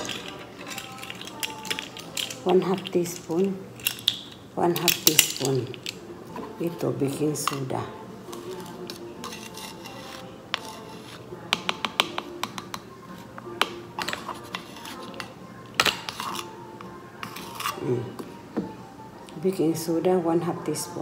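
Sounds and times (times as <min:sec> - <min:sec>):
measuring spoons clicking on a can: 0:00.0 - 0:06.0.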